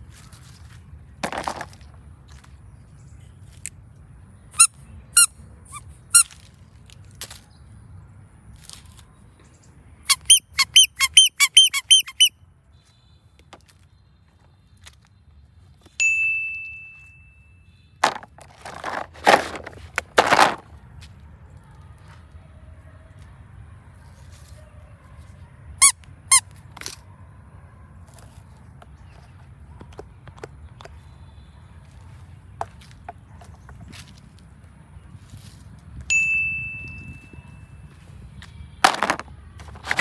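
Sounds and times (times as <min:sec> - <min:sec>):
rubber squeeze toy squeaking: 0:04.6 - 0:06.4, 0:10.1 - 0:12.3, 0:25.8 - 0:26.5.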